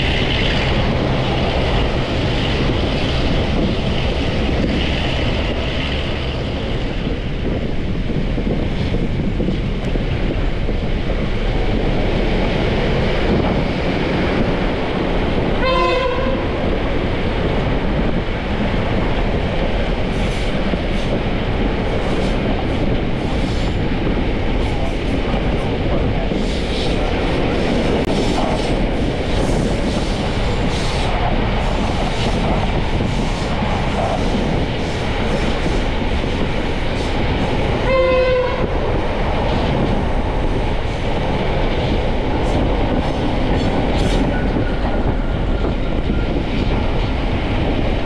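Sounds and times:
train wheels rumbling on track: 0.0s - 48.0s
train horn blast: 15.6s - 16.6s, 37.8s - 38.7s.

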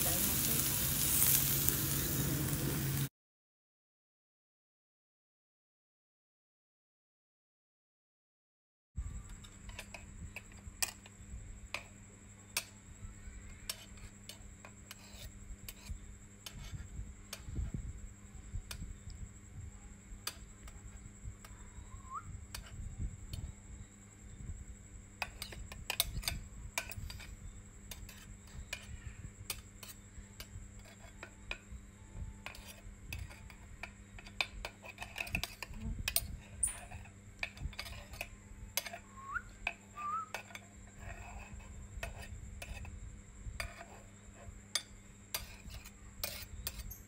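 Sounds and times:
faint steady hum: 9.0s - 47.0s.

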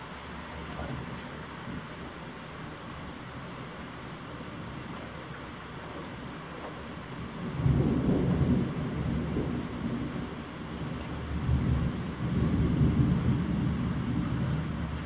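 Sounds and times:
heavy rain: 0.0s - 15.0s
thunder rumbling: 6.7s - 15.0s.

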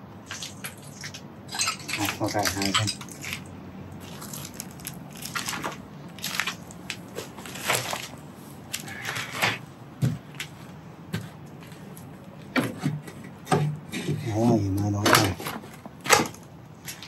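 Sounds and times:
debris crunching and scraping: 0.2s - 9.6s.

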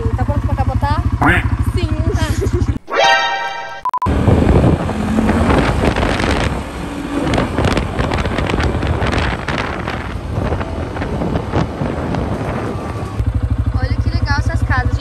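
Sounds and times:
quad bike engine running: 0.0s - 2.8s, 4.1s - 15.0s
wind buffeting microphone: 4.1s - 13.2s.

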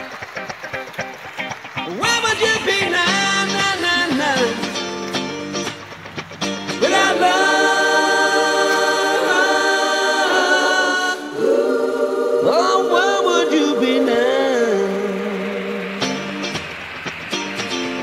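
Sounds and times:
voices singing in harmony: 6.7s - 16.4s.

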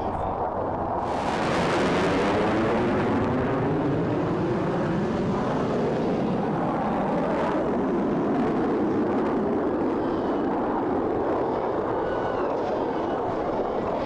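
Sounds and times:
jet engine rush: 0.0s - 14.0s.

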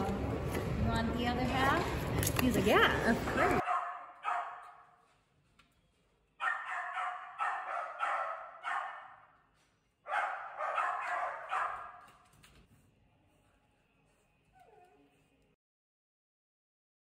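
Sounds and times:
dog barking: 3.4s - 5.0s, 6.4s - 9.4s, 10.1s - 12.1s.

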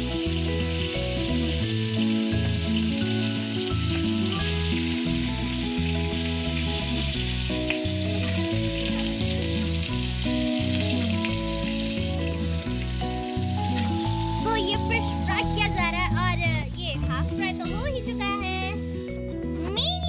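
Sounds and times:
fish sizzling in hot oil: 0.0s - 19.7s
background music with bass line: 0.0s - 20.0s.

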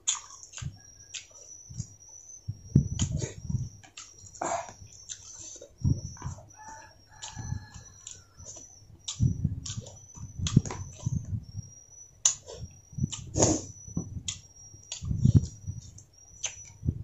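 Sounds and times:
person chewing and crunching: 0.0s - 2.1s, 3.0s - 11.3s
high chirping calls: 0.0s - 16.9s.

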